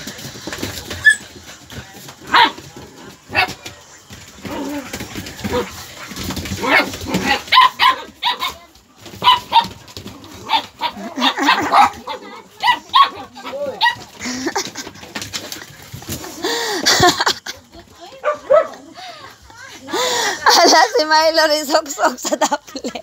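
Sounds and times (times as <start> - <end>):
dogs barking: 2.2 - 2.7, 5.4 - 14.1, 18.2 - 18.9.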